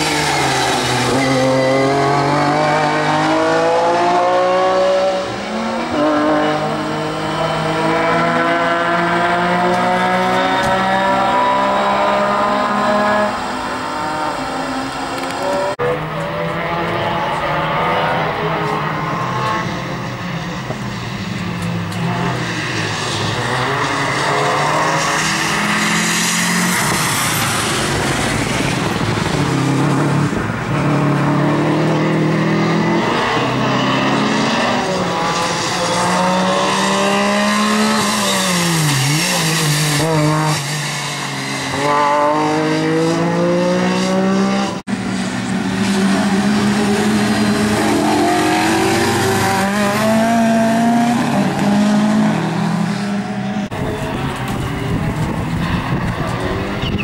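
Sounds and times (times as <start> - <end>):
rally car engine revving: 0.0 - 57.0
second rally car engine revving: 21.8 - 45.0, 45.6 - 57.0.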